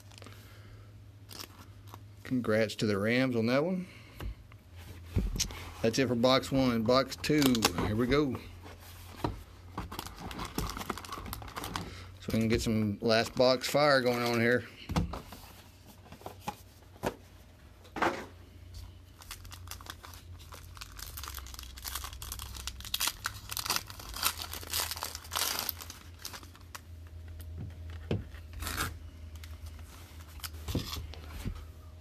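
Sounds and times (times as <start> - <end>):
foil pack tearing and crinkling: 10.0 - 11.8, 19.2 - 26.8.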